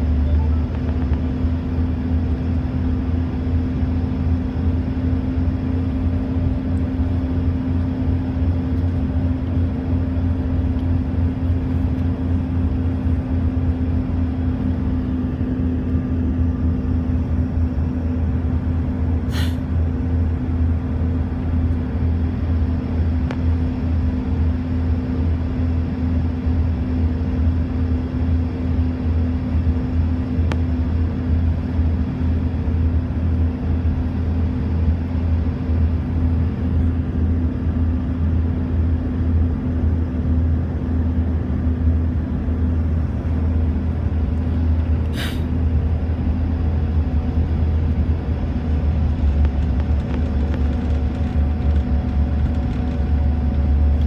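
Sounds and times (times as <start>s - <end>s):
airliner cabin rumble: 0.0s - 54.0s.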